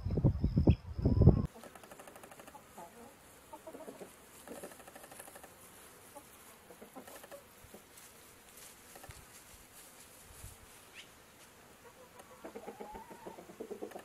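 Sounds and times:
chickens clucking: 1.2 - 8.0, 10.9 - 14.0.

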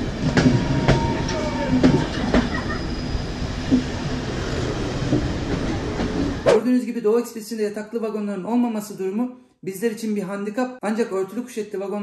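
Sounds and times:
train wheels rumbling: 0.0 - 6.5.

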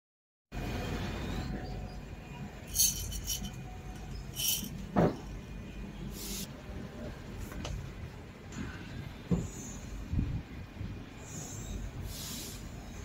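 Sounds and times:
coffee beans rattling in glass: 2.7 - 3.6, 4.4 - 4.8.

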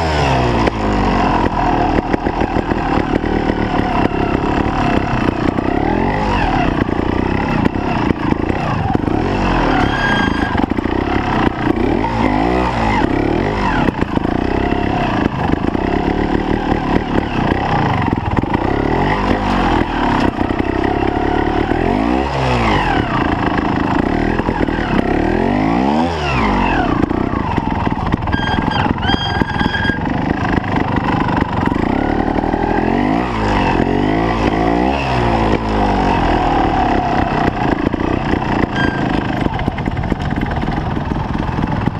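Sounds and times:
motorcycle engine revving: 0.0 - 41.9
brief high squeals: 9.6 - 10.6, 28.3 - 30.1, 38.7 - 39.2.

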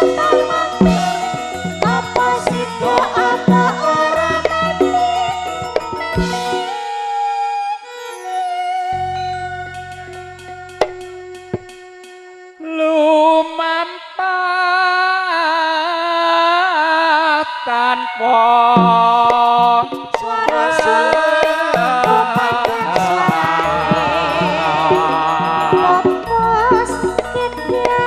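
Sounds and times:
drum strokes: 0.0 - 7.0, 9.7 - 12.4, 18.8 - 28.0
band playing: 0.0 - 7.2, 9.0 - 12.2, 18.8 - 28.0
held note: 18.8 - 28.0
ornamented solo melody: 18.8 - 28.0.

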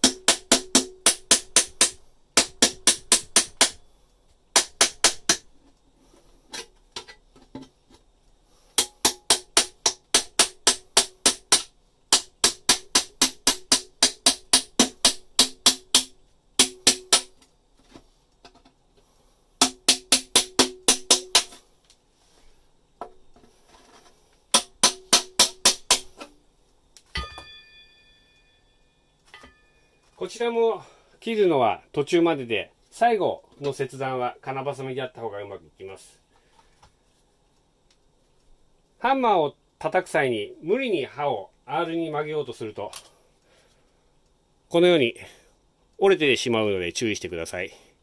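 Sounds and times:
ringing metallic clink: 27.1 - 30.0.

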